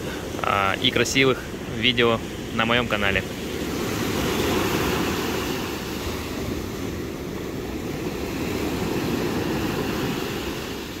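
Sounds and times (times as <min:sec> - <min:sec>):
waves washing up a pebble beach: 0:02.3 - 0:11.0.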